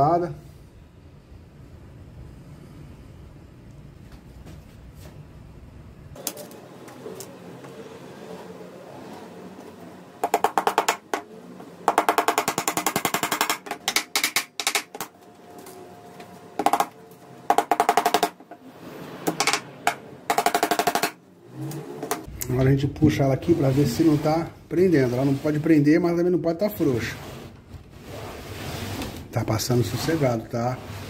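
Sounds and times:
hammer tapping nails into wood: 0:10.2 - 0:11.2, 0:11.9 - 0:15.1, 0:16.6 - 0:16.9, 0:17.5 - 0:18.4, 0:19.3 - 0:21.2.

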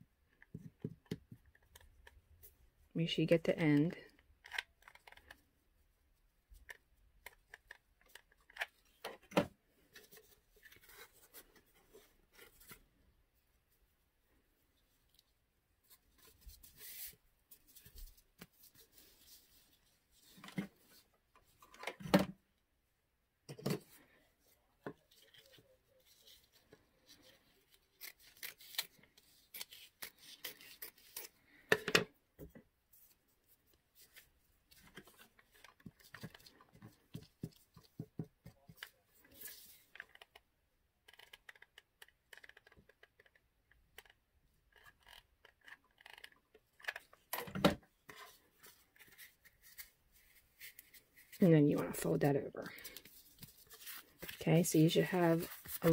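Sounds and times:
cloth rustling: 0:48.1 - 0:55.9.

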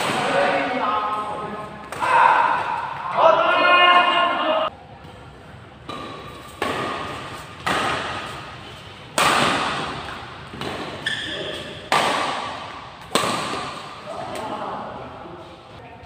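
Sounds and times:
rackets hitting shuttlecock: 0:05.8 - 0:14.5.

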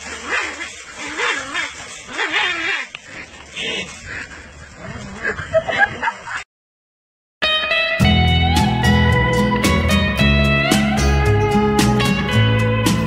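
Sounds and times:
dogs barking and yipping: 0:00.0 - 0:05.8.

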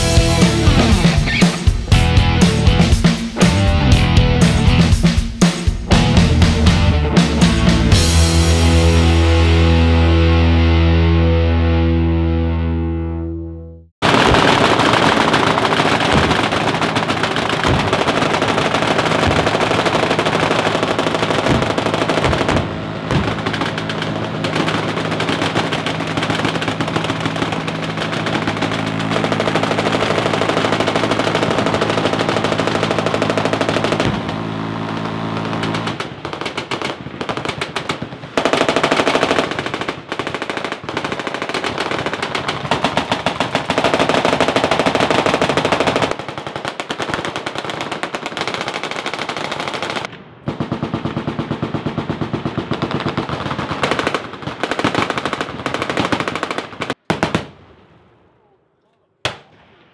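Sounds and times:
machine-gun fire: 0:14.0 - 0:57.6.

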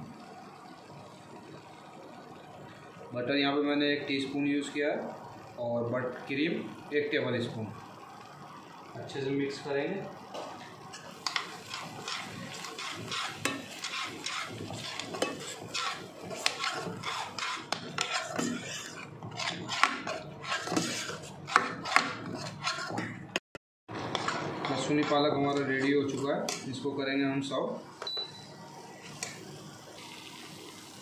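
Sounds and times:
spoon stirring thick gravy: 0:10.9 - 0:23.2, 0:23.9 - 0:26.6.

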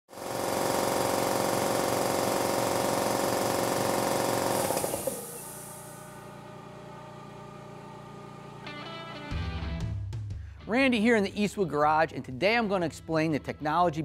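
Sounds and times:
piston air compressor running: 0:00.1 - 0:08.7.

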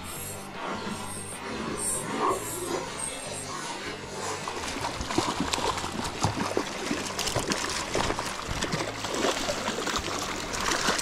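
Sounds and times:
river water flowing and splashing: 0:03.7 - 0:11.0.

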